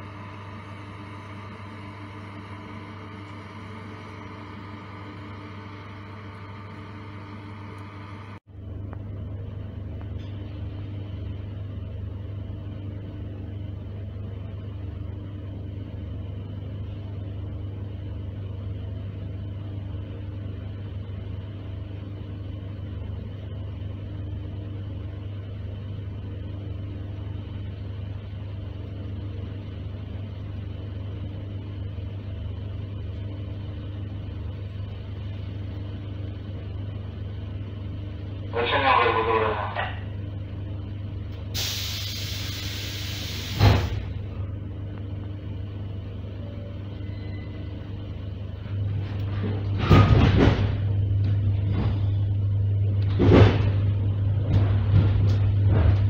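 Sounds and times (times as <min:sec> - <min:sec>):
train hum and rumble: 0:00.0 - 0:56.0
faint tone: 0:46.3 - 0:48.0.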